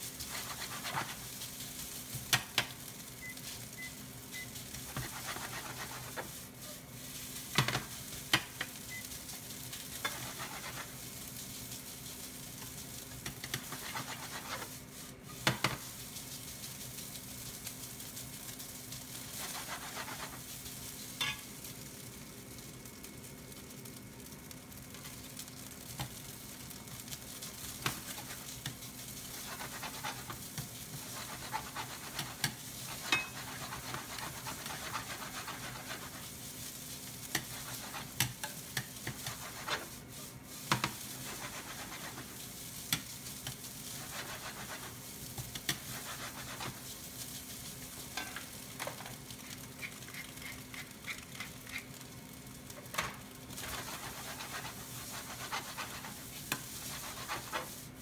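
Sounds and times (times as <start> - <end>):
rice sizzling in a frying pan: 0.0 - 58.0
ladle scraping and knocking pan: 31.0 - 36.0.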